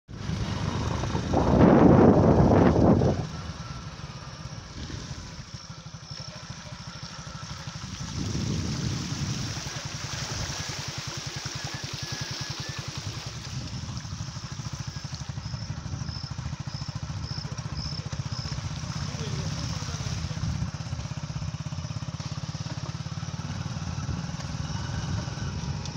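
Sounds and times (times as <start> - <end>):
wind rush on microphone: 0.1 - 3.8, 7.8 - 10.9
motorcycle engine running: 0.1 - 25.9.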